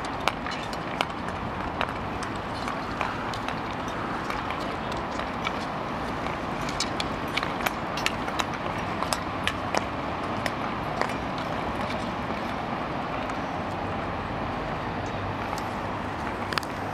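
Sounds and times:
skate blades clicking on ice: 0:00.0 - 0:12.6
steady background rush: 0:00.0 - 0:16.9.

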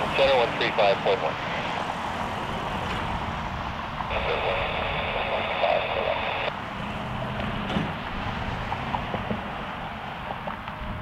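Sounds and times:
radio hiss with high tone: 0:00.0 - 0:01.7, 0:04.0 - 0:06.5
jet engines taxiing rumble: 0:00.0 - 0:11.0
wind: 0:00.0 - 0:11.0.

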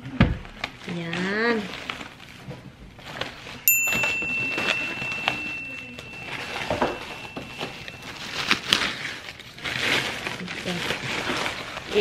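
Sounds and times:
plastic bag crinkling: 0:00.5 - 0:12.0
steady high-pitched tone: 0:03.7 - 0:08.8.

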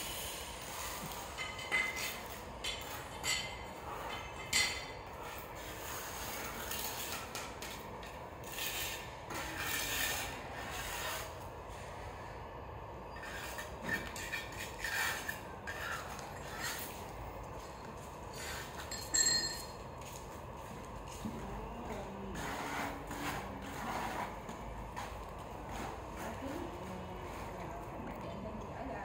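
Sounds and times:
broom sweeping tiled floor: 0:00.0 - 0:12.0, 0:13.1 - 0:27.8
hand tools scraping tiles: 0:03.7 - 0:11.4, 0:13.1 - 0:17.2, 0:18.3 - 0:19.0, 0:21.8 - 0:27.6.

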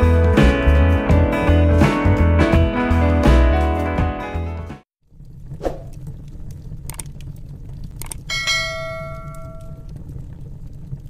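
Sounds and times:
low steady rumble: 0:05.0 - 0:11.0
wood fire crackling: 0:05.0 - 0:11.0
sharp clicks: 0:05.8 - 0:08.3
bell chime: 0:08.3 - 0:09.8.

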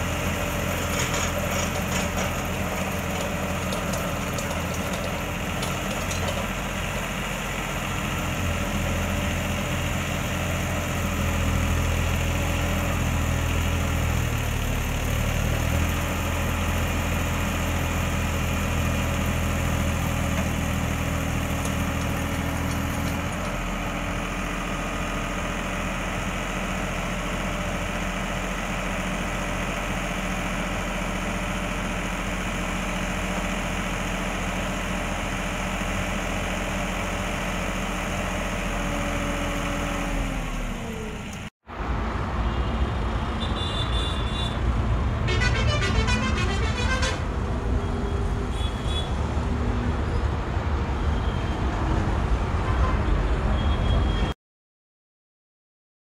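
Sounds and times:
tractor diesel engine running: 0:00.0 - 0:41.5, 0:43.6 - 0:48.7.

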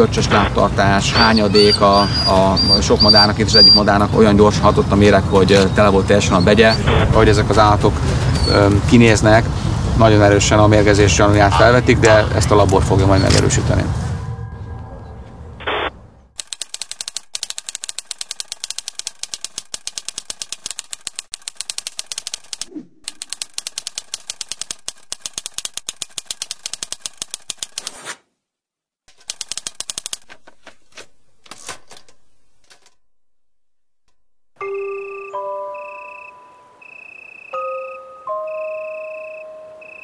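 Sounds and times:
typewriter keys clattering: 0:16.4 - 0:22.6, 0:23.2 - 0:27.9, 0:29.1 - 0:33.0
soft musical notes: 0:34.6 - 0:36.8, 0:37.6 - 0:39.9.

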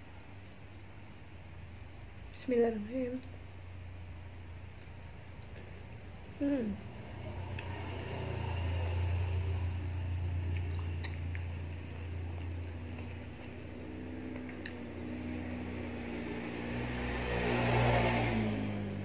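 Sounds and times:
low hum: 0:00.0 - 0:19.0
person chewing orange: 0:10.4 - 0:13.6
wet mouth clicks: 0:10.5 - 0:11.6, 0:14.3 - 0:14.8.

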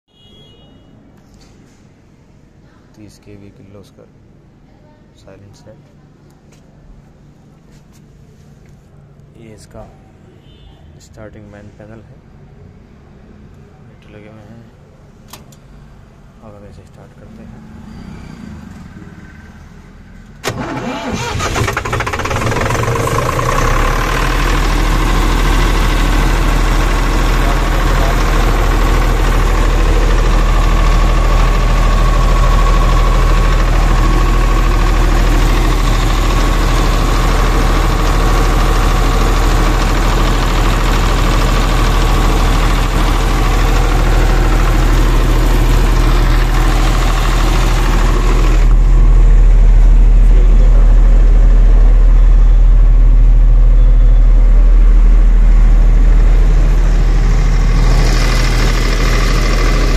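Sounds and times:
diesel generator humming: 0:20.2 - 0:59.9.

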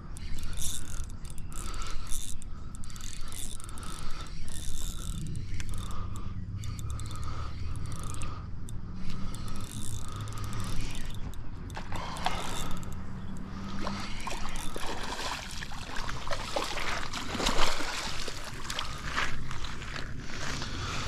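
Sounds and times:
fishing reel gears whirring: 0:00.0 - 0:21.0
fish splashing in shallow water: 0:10.7 - 0:12.9, 0:13.5 - 0:20.6.

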